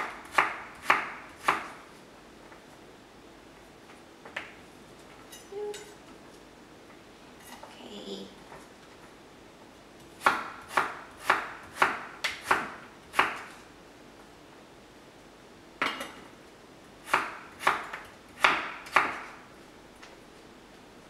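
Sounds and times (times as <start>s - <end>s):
knife chopping on wooden board: 0.0s - 1.7s, 10.2s - 13.5s, 17.1s - 19.3s.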